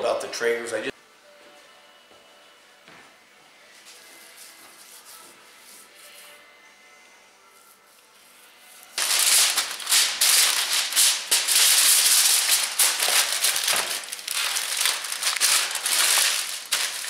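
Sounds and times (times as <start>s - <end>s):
aluminium foil crinkling: 9.0s - 17.0s.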